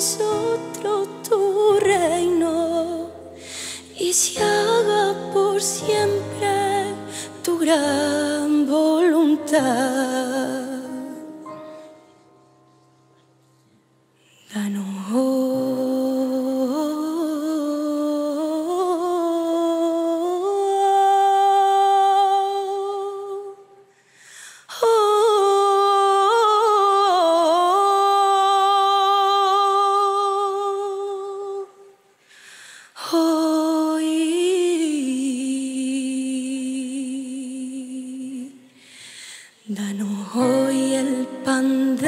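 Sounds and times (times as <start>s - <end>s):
girl singing long notes: 0.0s - 11.5s.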